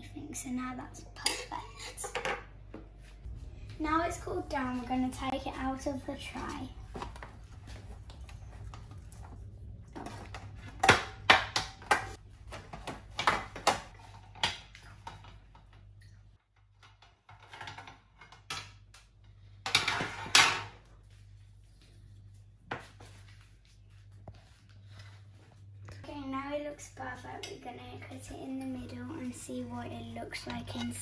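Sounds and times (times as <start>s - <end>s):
baking tray and utensils clattering: 16.8s - 18.8s, 19.4s - 20.9s, 27.1s - 31.0s.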